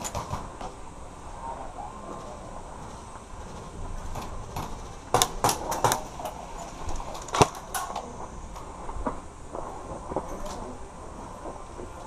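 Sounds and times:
airsoft gunshots: 3.4s - 8.2s.

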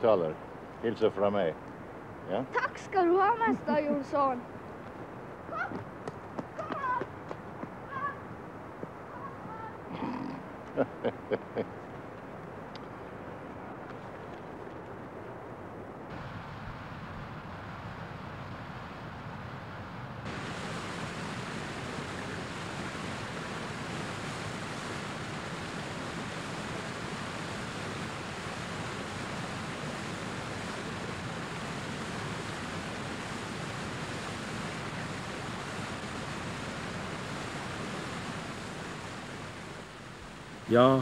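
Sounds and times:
waterfall rushing: 16.1s - 18.8s, 20.2s - 41.0s.

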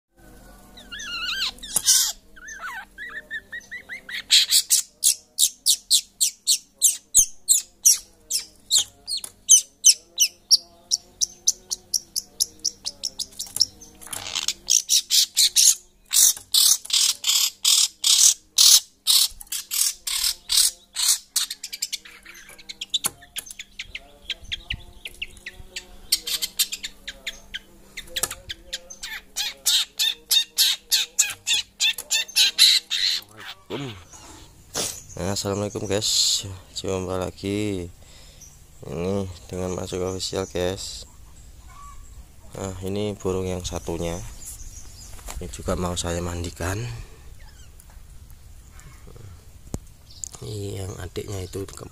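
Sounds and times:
bird chattering calls: 0.8s - 35.2s.

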